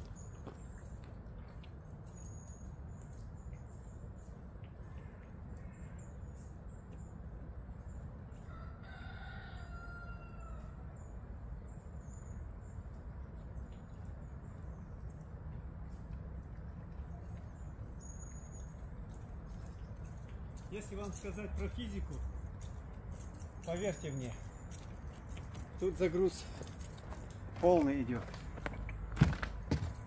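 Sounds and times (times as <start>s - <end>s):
rooster crowing: 8.5s - 10.8s.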